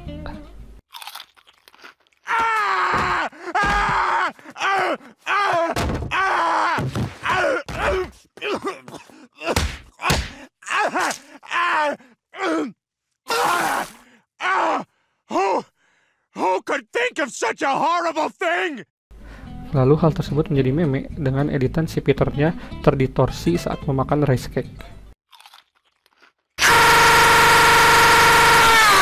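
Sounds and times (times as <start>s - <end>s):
cartoon man groaning: 7.2s - 13.9s.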